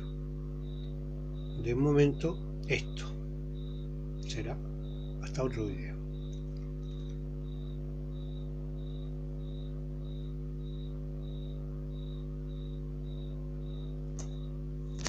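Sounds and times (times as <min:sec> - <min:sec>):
cricket chirping: 0:00.0 - 0:15.0
low electrical hum: 0:00.0 - 0:15.0
single click: 0:14.2 - 0:14.4.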